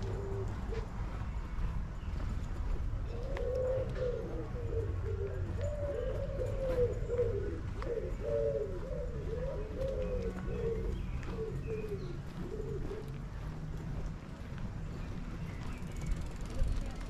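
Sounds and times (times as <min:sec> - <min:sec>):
pigeons cooing: 0:00.0 - 0:01.2, 0:03.0 - 0:13.5.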